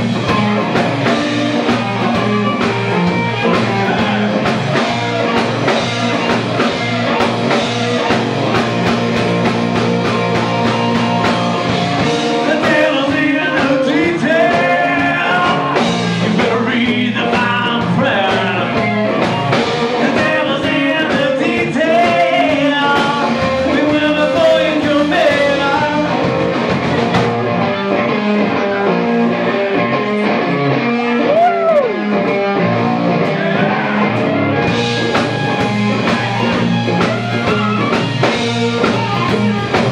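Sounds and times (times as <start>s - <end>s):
blues-rock band playing: 0.0s - 39.9s
electric guitar: 0.0s - 39.9s
harmonica wailing: 0.2s - 8.2s, 31.1s - 39.8s.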